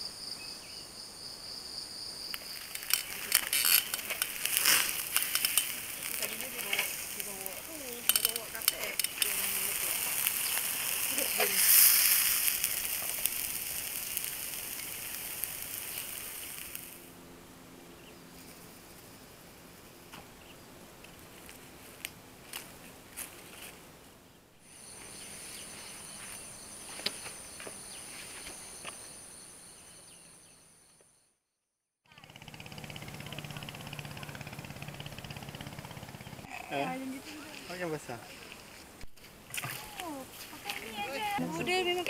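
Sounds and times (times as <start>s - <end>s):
scattered clicks: 2.3s - 9.6s
chicken sizzling on a grill: 2.6s - 17.1s
steady high whine: 24.6s - 30.6s
outboard motor buzzing: 32.2s - 36.8s.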